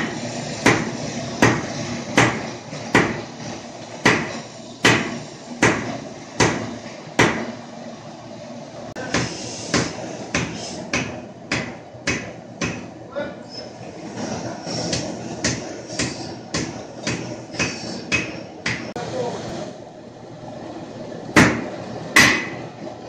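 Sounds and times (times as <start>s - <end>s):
sledgehammer striking steel on anvil: 21.4s - 22.6s.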